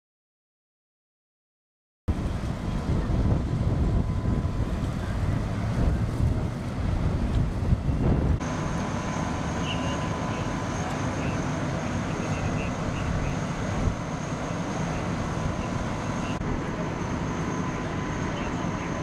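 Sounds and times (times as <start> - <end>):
wind buffeting microphone: 2.1 - 8.7, 12.3 - 14.2
fire engines idling: 2.1 - 19.0
faint steady high tone: 9.1 - 13.5.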